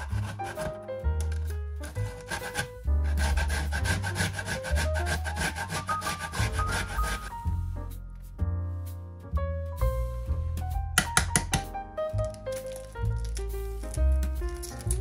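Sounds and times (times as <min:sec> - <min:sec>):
carrot rasping on grater: 0:00.0 - 0:00.8, 0:01.8 - 0:07.4
fingers scraping grater: 0:00.0 - 0:07.4
background music with deep bass: 0:06.6 - 0:15.0.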